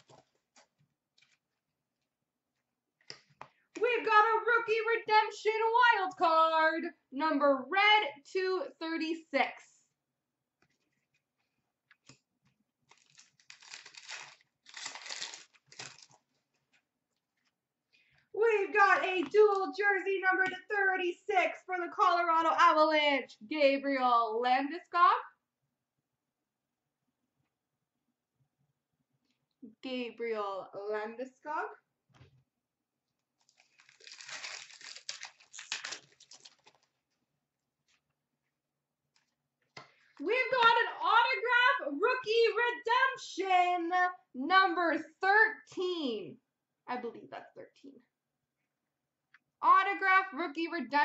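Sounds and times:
cards rustling and sliding: 0:00.0 - 0:01.6
foil wrapper tearing and crumpling: 0:12.8 - 0:16.3, 0:33.4 - 0:37.0.

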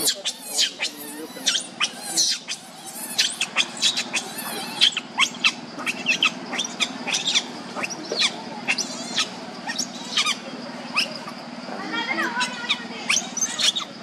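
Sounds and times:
infant monkey squealing: 0:00.0 - 0:14.0.

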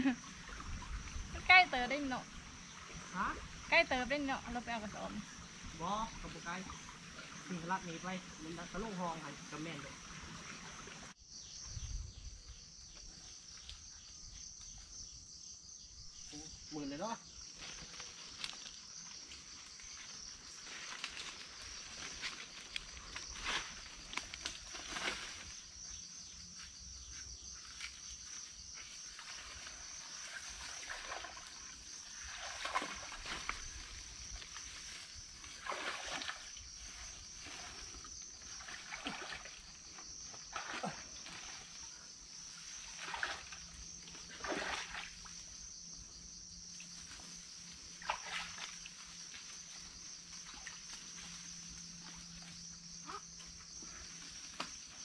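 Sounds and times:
high-pitched insect chorus: 0:00.0 - 0:55.0
vegetation rustling and cracking: 0:17.6 - 0:19.4, 0:20.6 - 0:25.5.

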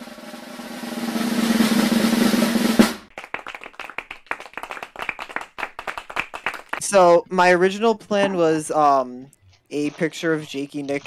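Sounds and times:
drum roll: 0:00.0 - 0:03.1.

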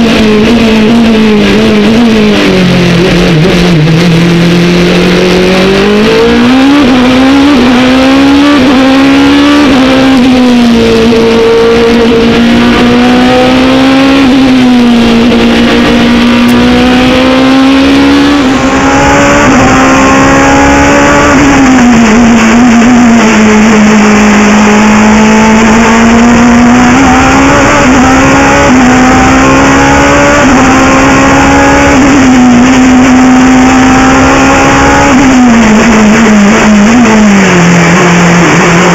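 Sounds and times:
race car engine at full throttle: 0:00.0 - 0:38.9.

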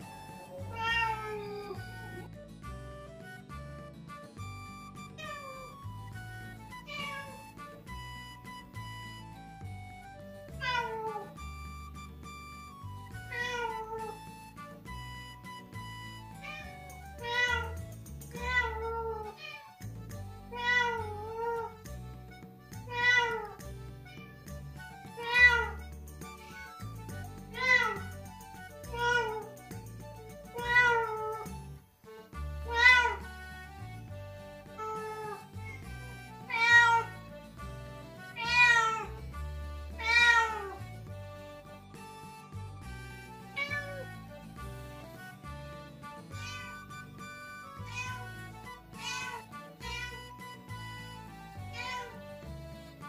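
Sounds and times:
soft background music: 0:00.0 - 0:53.0
cats meowing: 0:00.3 - 0:02.2, 0:05.2 - 0:05.8, 0:06.7 - 0:07.5, 0:10.5 - 0:11.6, 0:13.2 - 0:14.5, 0:16.4 - 0:19.8, 0:20.5 - 0:21.8, 0:22.8 - 0:24.3, 0:25.2 - 0:26.0, 0:27.5 - 0:29.6, 0:30.5 - 0:31.6, 0:32.6 - 0:33.4, 0:34.7 - 0:35.8, 0:36.4 - 0:37.4, 0:38.3 - 0:39.2, 0:39.9 - 0:40.9, 0:43.6 - 0:44.2, 0:46.3 - 0:46.8, 0:47.8 - 0:50.5, 0:51.6 - 0:52.2.

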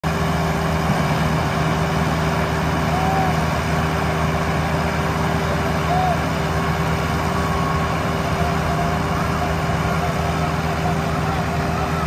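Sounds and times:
tractor diesel engines idling: 0:00.0 - 0:12.0.

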